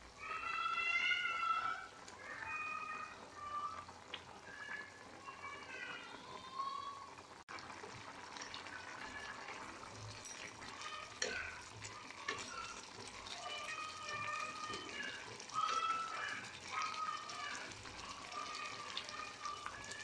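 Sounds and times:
water bubbling at a boil: 0:00.0 - 0:20.0
wooden spatula stirring in pan: 0:07.7 - 0:20.0.

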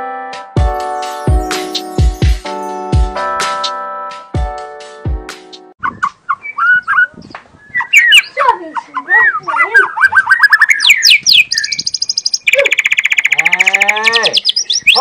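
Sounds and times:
bird singing whistled trills: 0:05.8 - 0:08.4, 0:09.1 - 0:15.0.

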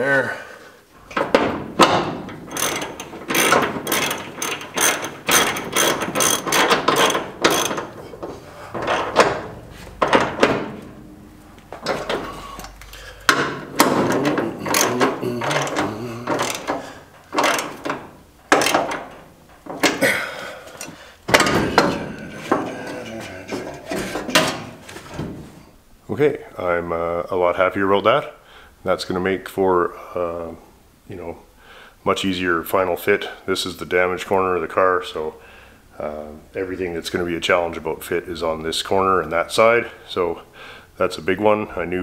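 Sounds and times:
ratchet wrench clicking: 0:02.5 - 0:08.0.

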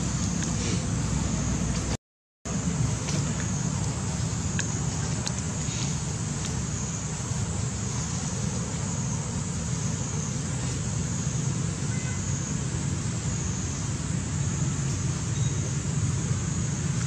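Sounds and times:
high hiss: 0:02.5 - 0:17.0.

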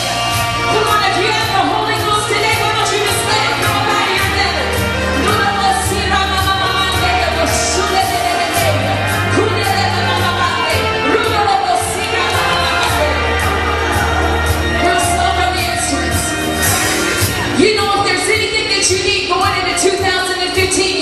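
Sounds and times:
sustained bass notes: 0:00.0 - 0:19.7
full band playing: 0:00.0 - 0:21.0
choir singing worship song: 0:01.1 - 0:17.3.

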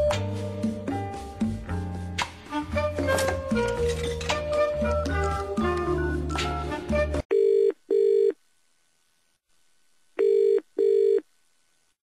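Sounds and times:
music: 0:00.0 - 0:07.3
telephone ringing tone: 0:07.3 - 0:08.4, 0:10.2 - 0:11.2.

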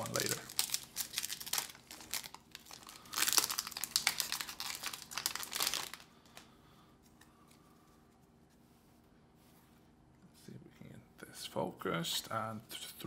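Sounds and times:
plastic wrapper crinkling and tearing: 0:00.0 - 0:06.5.

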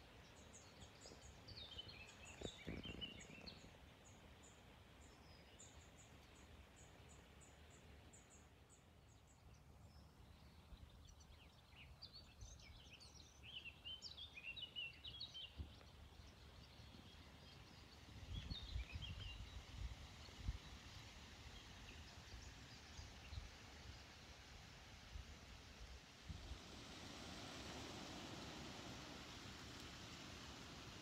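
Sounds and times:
small birds chirping: 0:00.0 - 0:24.4.

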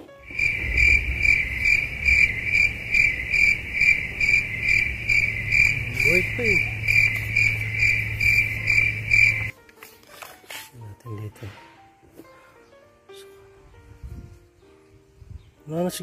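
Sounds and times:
high-pitched chirping: 0:00.3 - 0:09.5
low hum: 0:00.3 - 0:09.5.

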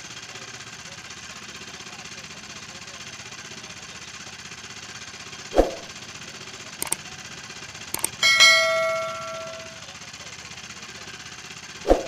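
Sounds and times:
light clicks: 0:08.0 - 0:08.2
metal bell-like clang: 0:08.0 - 0:09.8.

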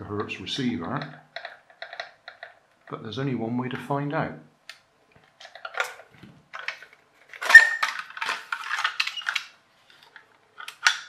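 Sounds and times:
hard plastic clicking and clattering: 0:01.0 - 0:03.0, 0:05.2 - 0:11.0.

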